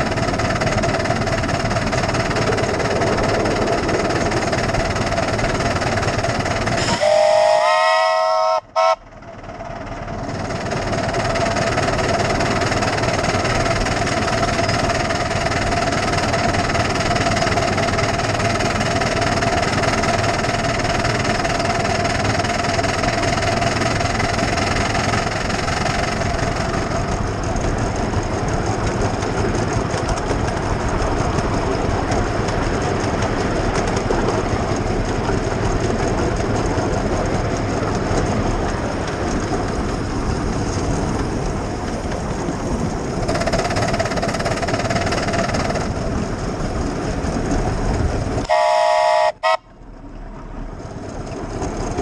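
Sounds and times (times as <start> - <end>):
steady tone: 0.0 - 10.0
miniature steam locomotive running: 0.0 - 52.0.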